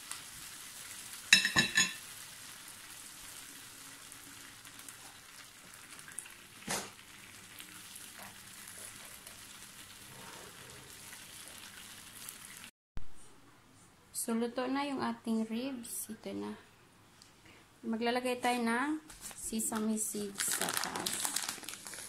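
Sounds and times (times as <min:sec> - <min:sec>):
glaze sizzling on hot grill: 0:00.0 - 0:12.7.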